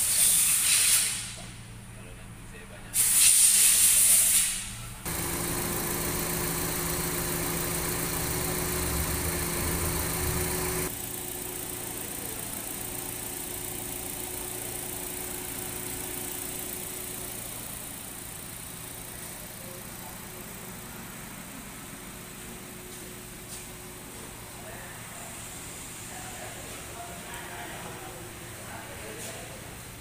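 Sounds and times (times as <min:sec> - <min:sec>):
loud hiss: 0:00.0 - 0:01.4, 0:03.0 - 0:05.3
car engine idling: 0:05.0 - 0:28.9.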